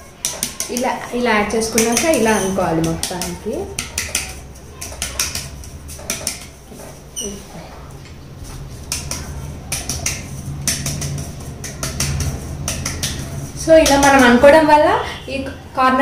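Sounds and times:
metal tin tapped by hand: 0:00.2 - 0:06.6, 0:08.8 - 0:14.4.

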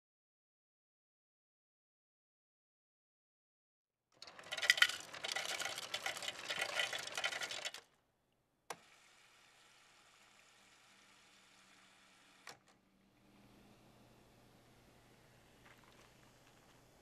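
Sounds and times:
ice cubes clattering into cup: 0:04.2 - 0:07.8
soda pouring hiss: 0:08.8 - 0:12.4.

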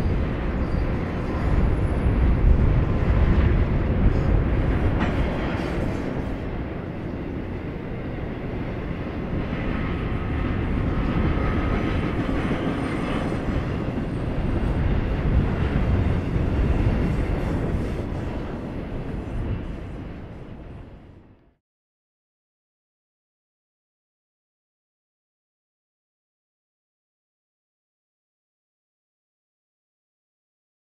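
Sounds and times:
train wheels rumbling on rail: 0:00.0 - 0:21.4.

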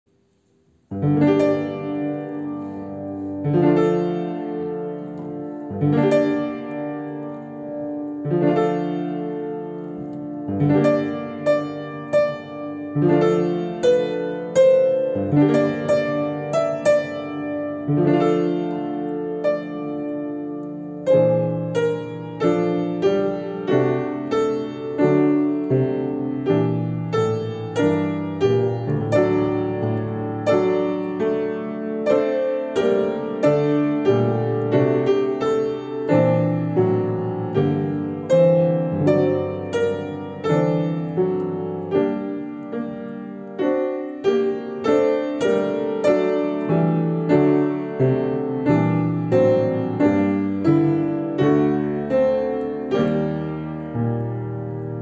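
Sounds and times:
upright piano playing: 0:00.4 - 0:55.0.

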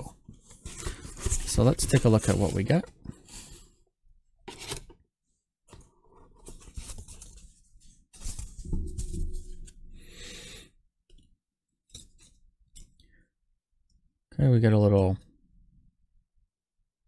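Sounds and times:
cardboard and foam rustling: 0:00.3 - 0:03.6, 0:06.1 - 0:09.8.

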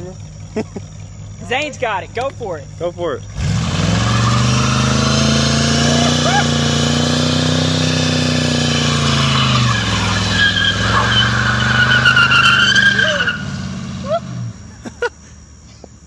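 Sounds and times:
tires squealing on pavement: 0:03.3 - 0:14.5
car engine revving high: 0:03.3 - 0:14.6.

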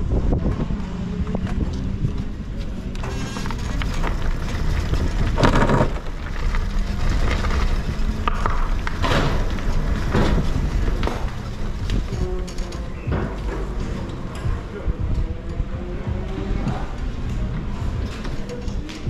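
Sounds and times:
kart rolling with low rumble: 0:00.0 - 0:19.0
scraping bursts: 0:02.8 - 0:14.0.

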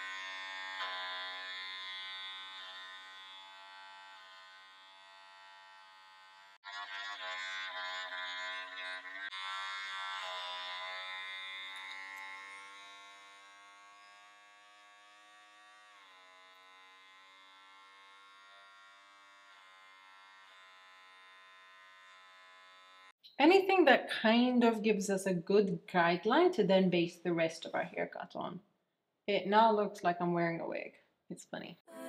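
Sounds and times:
electric hair clipper buzzing: 0:00.0 - 0:23.2.

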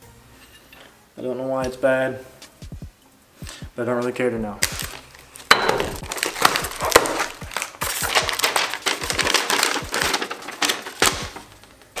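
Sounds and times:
packing paper crinkling: 0:04.6 - 0:12.0
cardboard box being opened: 0:06.0 - 0:11.4.

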